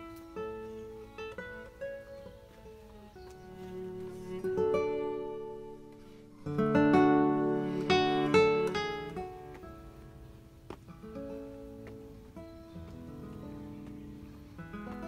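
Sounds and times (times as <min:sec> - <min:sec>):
acoustic guitar music: 0:00.0 - 0:15.0.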